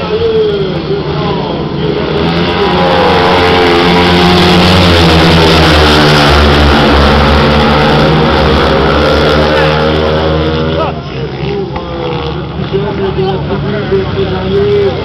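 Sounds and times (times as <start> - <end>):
racing motorcycles engines: 0.0 - 15.0.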